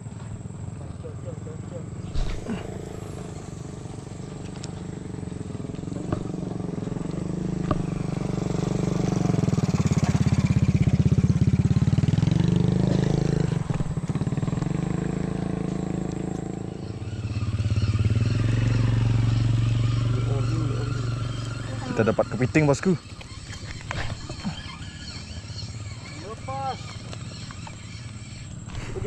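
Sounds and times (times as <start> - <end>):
spinning reel gears buzzing: 13.2 - 29.0.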